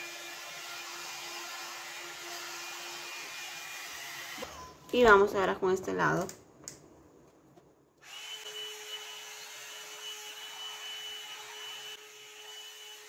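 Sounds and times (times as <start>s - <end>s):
hot-air brush dryer running: 0.0s - 4.6s, 8.0s - 13.0s.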